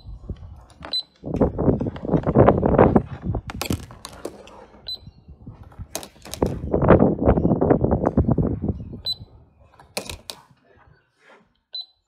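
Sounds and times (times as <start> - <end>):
plastic toys clattering: 3.3 - 4.5, 5.7 - 6.7, 9.7 - 10.6.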